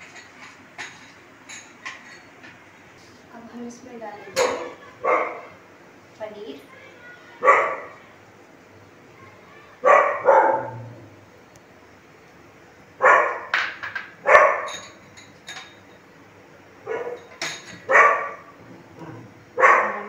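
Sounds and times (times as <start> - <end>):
dog barking: 4.5 - 5.6, 7.4 - 8.0, 9.8 - 10.9, 13.0 - 13.5, 14.2 - 14.7, 16.8 - 18.5, 19.6 - 20.0.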